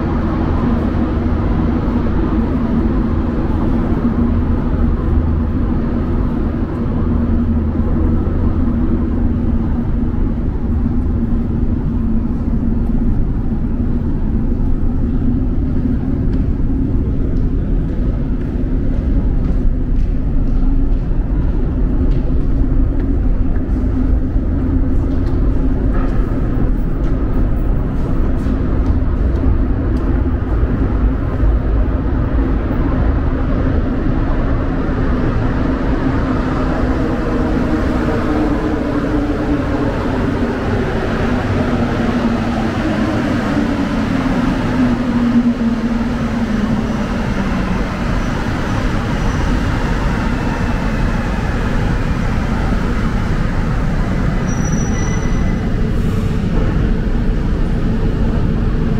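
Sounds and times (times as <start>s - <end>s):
metro train rumbling: 0.0s - 58.9s.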